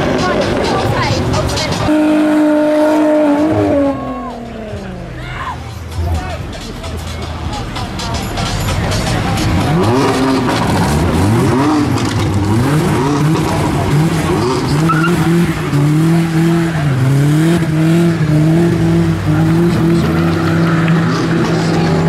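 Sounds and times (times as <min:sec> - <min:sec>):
car engine revving: 0:00.0 - 0:05.2, 0:05.8 - 0:22.0
tyres squealing: 0:08.0 - 0:17.2.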